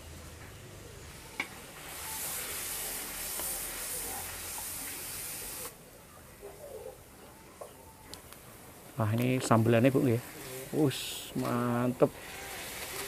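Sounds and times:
paste sizzling in oil: 1.2s - 5.8s, 9.6s - 13.0s.

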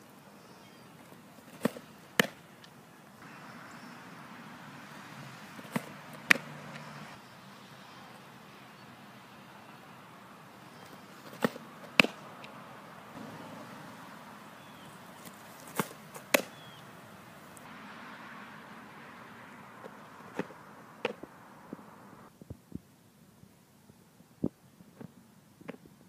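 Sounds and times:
ball popping into catcher's mitt: 1.5s - 2.4s, 11.3s - 12.2s, 15.7s - 16.6s, 19.8s - 21.8s
softball pitch release snap: 1.5s - 2.8s, 5.6s - 6.9s, 11.3s - 12.6s, 15.7s - 16.6s, 19.8s - 21.8s.

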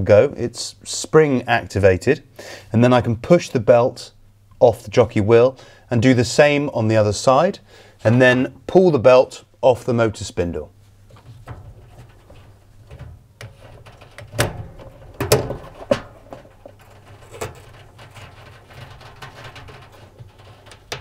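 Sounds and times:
quiet handling noise: 10.6s - 21.0s.

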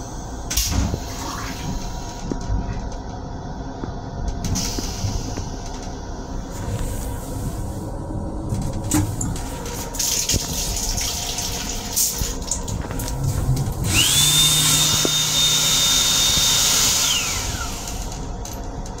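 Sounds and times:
hand dryer whining and blowing: 9.2s - 18.6s
faucet water running into sink: 10.0s - 13.0s.

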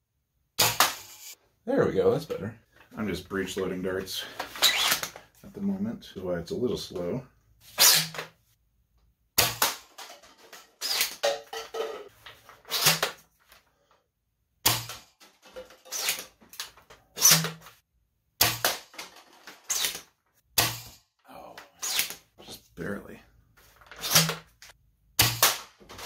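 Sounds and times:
toy blaster shots: 0.6s - 1.4s.

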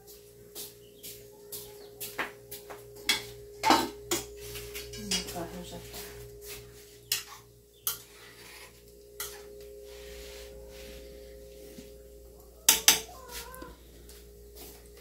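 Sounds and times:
faint steady hum: 0.0s - 15.0s
metal pots clanking on stove: 3.1s - 5.5s, 7.0s - 9.5s, 12.7s - 13.2s.

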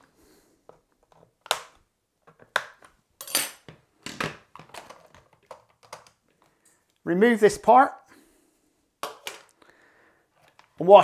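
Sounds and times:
hard plastic clicking and clattering: 4.1s - 6.2s.

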